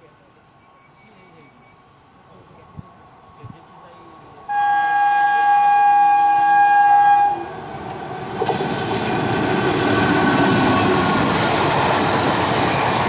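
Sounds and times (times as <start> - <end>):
approaching train on track: 0.9 - 13.0
locomotive horn blast: 4.5 - 7.5.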